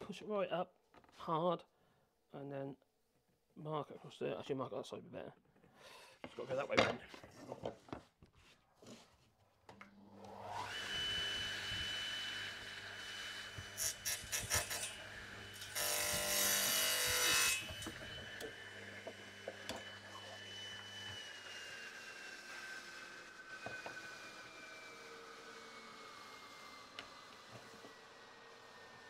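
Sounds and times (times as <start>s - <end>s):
radial arm saw motor whine: 10.1s - 29.0s
saw blade cutting wood: 10.2s - 29.0s.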